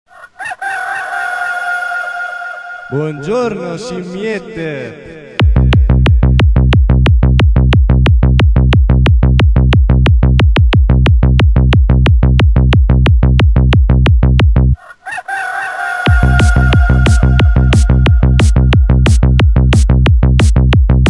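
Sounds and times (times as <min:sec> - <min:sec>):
rooster crowing: 0:00.1 - 0:03.0, 0:14.8 - 0:18.4
techno kick drum beat: 0:05.4 - 0:14.7, 0:16.1 - 0:21.0.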